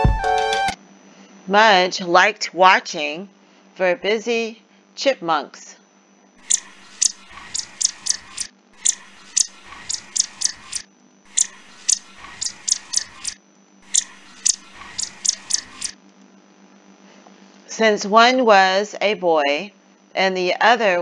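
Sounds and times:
chipmunk chewing: 0:06.4 - 0:16.0.

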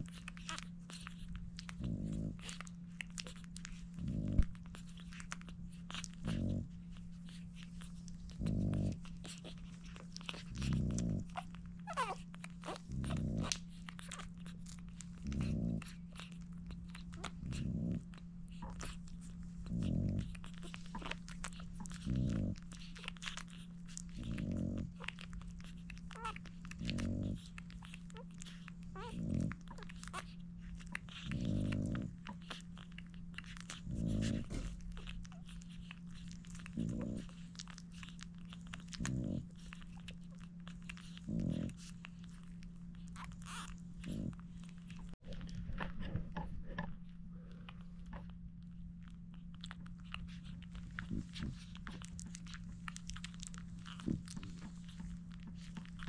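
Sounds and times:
dog breathing heavily: 0:00.0 - 0:56.0
puppies suckling: 0:00.0 - 0:56.0
puppy squeak: 0:11.8 - 0:13.2.

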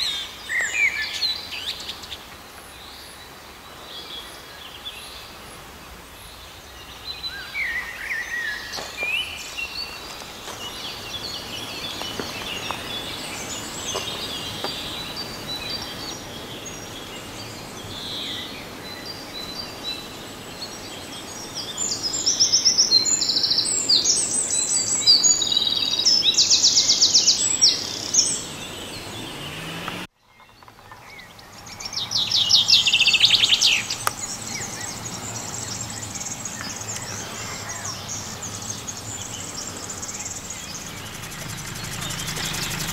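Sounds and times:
songbirds singing and chirping: 0:00.0 - 0:42.9.

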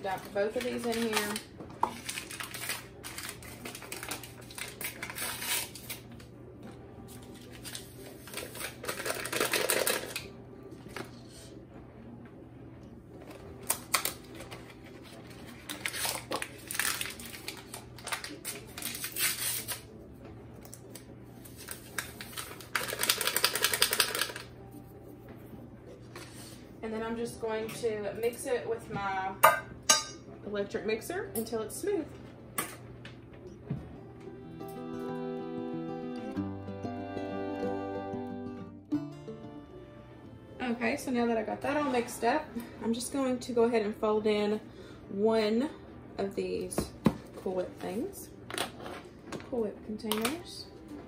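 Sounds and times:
packets crinkling and tearing: 0:00.1 - 0:06.3, 0:07.1 - 0:10.3, 0:13.2 - 0:19.9, 0:20.6 - 0:24.5.

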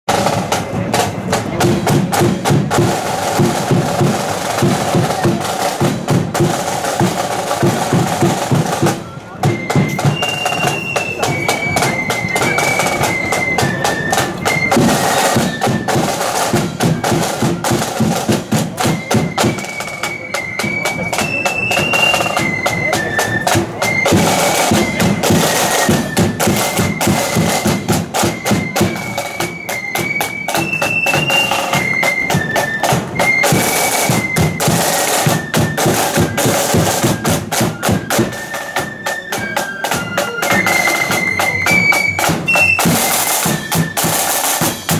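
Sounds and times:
flutes playing march melody: 0:00.1 - 0:44.9
side drums beating: 0:00.1 - 0:44.9.

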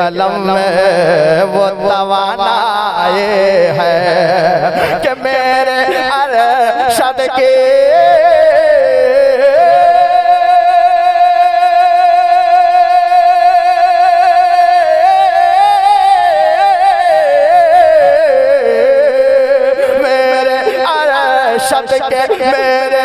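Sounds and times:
man singing into a microphone: 0:00.0 - 0:23.0.

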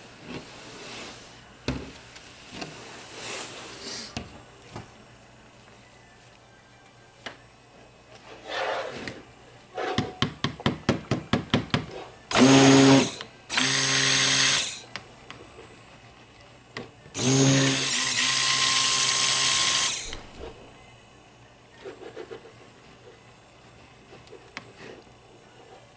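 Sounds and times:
stick blender motor whine: 0:12.3 - 0:14.8, 0:17.1 - 0:20.4.

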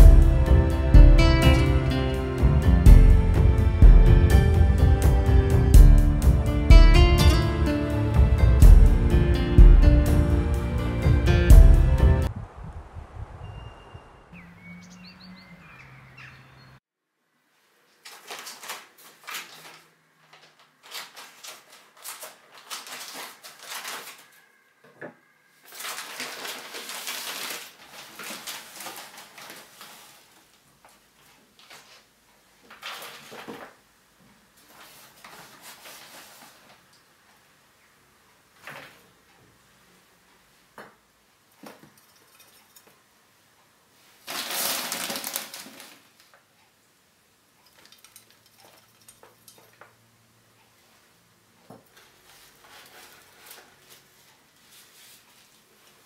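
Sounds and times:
plastic bag crinkling: 0:17.9 - 0:24.4, 0:25.6 - 0:30.6, 0:44.2 - 0:46.4
soil pouring: 0:44.2 - 0:46.0.

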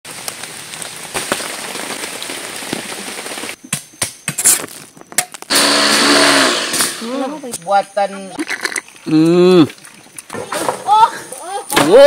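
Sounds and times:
rain on foliage: 0:00.0 - 0:03.6
blender motor: 0:05.5 - 0:07.0.

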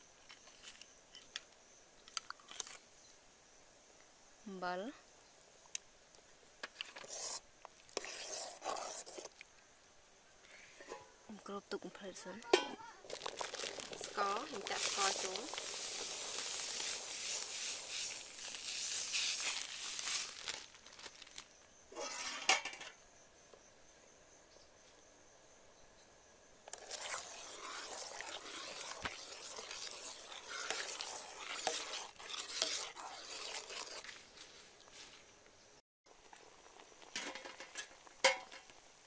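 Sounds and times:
ladle scraping a metal pot: 0:06.8 - 0:07.4, 0:08.0 - 0:09.3, 0:12.5 - 0:20.6, 0:21.9 - 0:22.9, 0:26.7 - 0:34.2, 0:37.0 - 0:38.6
sago pearls poured into metal pot: 0:13.0 - 0:21.4, 0:26.7 - 0:34.1.

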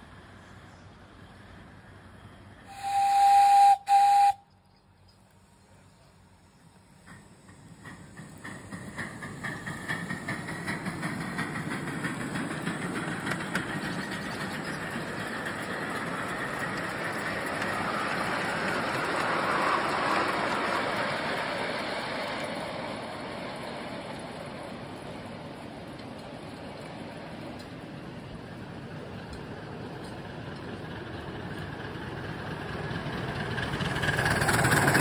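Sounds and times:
steam locomotive chuffing: 0:01.2 - 0:04.5, 0:05.6 - 0:35.0
hiss of steam: 0:02.7 - 0:04.4, 0:06.5 - 0:18.2.

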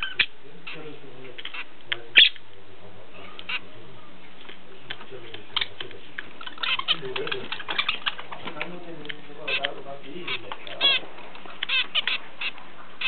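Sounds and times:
finch calls: 0:00.0 - 0:02.4, 0:03.2 - 0:03.7, 0:05.4 - 0:08.6, 0:09.4 - 0:13.0.

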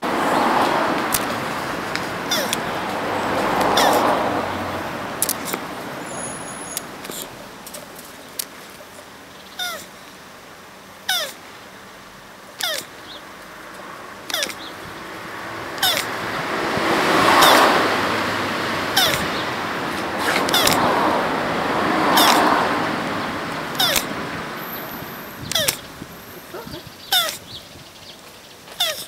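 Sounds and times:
rushing noise: 0:00.0 - 0:08.2, 0:13.6 - 0:26.6
tortoise squeaking: 0:02.1 - 0:07.5, 0:09.4 - 0:10.0, 0:11.0 - 0:11.4, 0:12.5 - 0:13.2, 0:14.2 - 0:16.3, 0:17.4 - 0:17.8, 0:18.9 - 0:21.0, 0:22.0 - 0:22.7, 0:23.5 - 0:27.7, 0:28.7 - 0:29.0.

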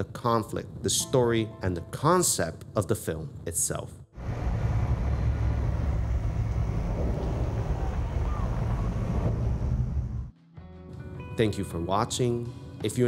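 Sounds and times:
deep mechanical rumble: 0:04.2 - 0:10.3.

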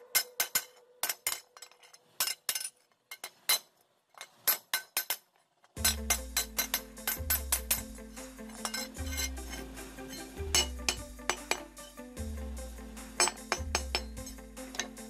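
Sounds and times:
hammer clinking on iron bar: 0:05.8 - 0:07.9, 0:08.5 - 0:11.8, 0:13.2 - 0:15.0
background music with bass: 0:05.8 - 0:15.0.

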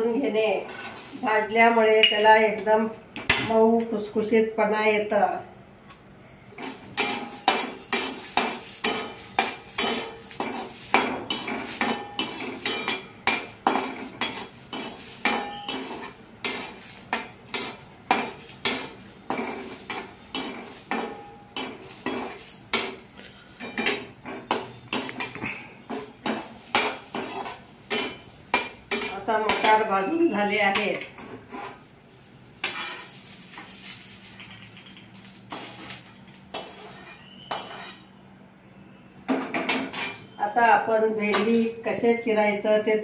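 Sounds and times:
metal spoon clinking in wok: 0:06.6 - 0:23.0.

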